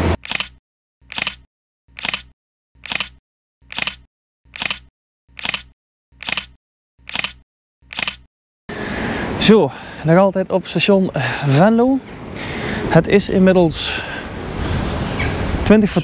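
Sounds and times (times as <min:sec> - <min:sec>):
camera shutter double snap: 0:00.0 - 0:08.3.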